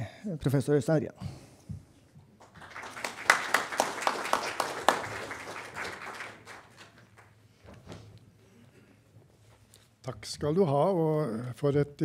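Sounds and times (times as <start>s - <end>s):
sharp individual claps: 2.4s - 7.3s
audience applauding: 2.4s - 7.4s.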